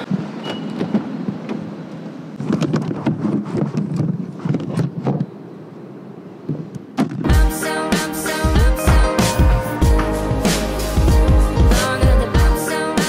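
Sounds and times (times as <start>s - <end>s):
bumps and clicks against car: 0.1s - 5.4s, 6.4s - 7.3s.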